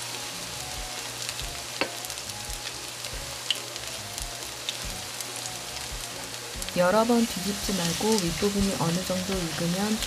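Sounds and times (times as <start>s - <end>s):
fritters sizzling in oil: 0.0s - 10.0s
oil popping and crackling: 3.4s - 3.9s, 4.6s - 5.0s.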